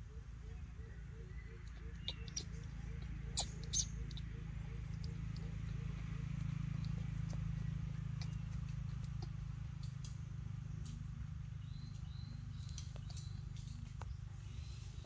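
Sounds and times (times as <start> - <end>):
steady low hum: 0.0 - 15.0
monkey chewing: 2.1 - 10.2.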